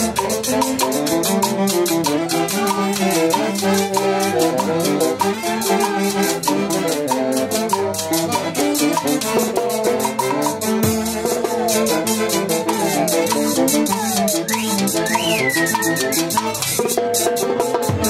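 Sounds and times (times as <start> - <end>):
trumpets: 0.0 - 16.8
drum kit with cymbals: 6.3 - 18.0.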